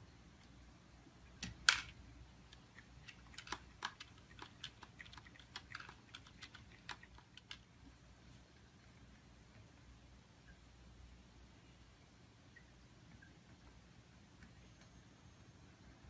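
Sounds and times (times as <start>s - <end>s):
kibble clicking on plastic tray: 2.6s - 7.6s.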